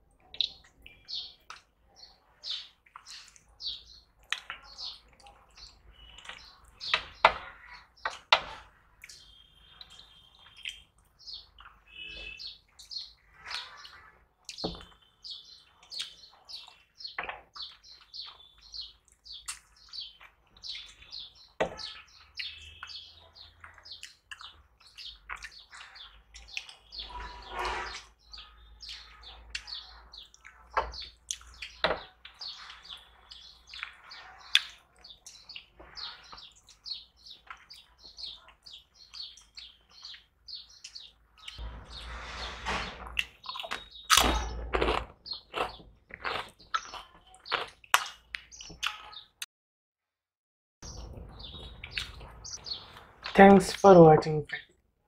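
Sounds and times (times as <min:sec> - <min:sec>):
fingers squishing food: 0:02.5 - 0:09.5, 0:12.8 - 0:26.9, 0:28.9 - 0:41.6, 0:43.2 - 0:49.4
chewing and lip-smacking: 0:15.7 - 0:21.1, 0:23.7 - 0:25.8, 0:29.5 - 0:32.4, 0:37.4 - 0:41.6, 0:43.2 - 0:49.1, 0:51.8 - 0:53.4.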